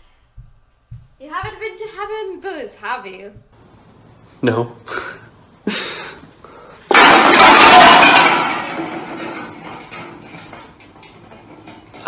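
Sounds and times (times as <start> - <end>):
loud smashing crash: 6.9 - 10.8
clinking debris: 6.9 - 12.0.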